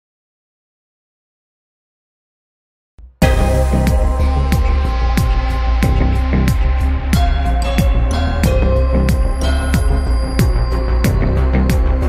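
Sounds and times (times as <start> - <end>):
music: 3.0 - 12.0.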